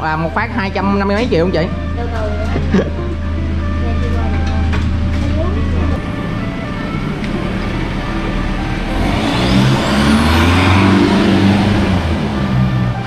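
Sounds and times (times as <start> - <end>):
truck engine driving past: 0.0 - 13.0.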